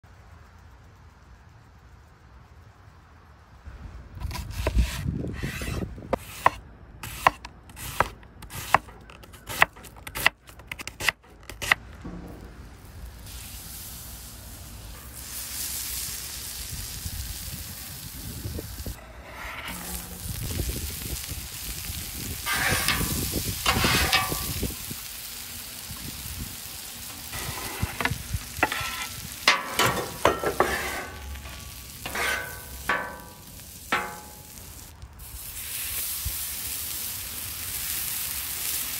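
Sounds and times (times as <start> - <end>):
onions sizzling on griddle: 4.3 - 10.4, 12.7 - 38.9
knife chopping onion: 4.3 - 11.8
metal spatula scraping: 19.0 - 20.4, 22.4 - 24.6, 27.3 - 34.6.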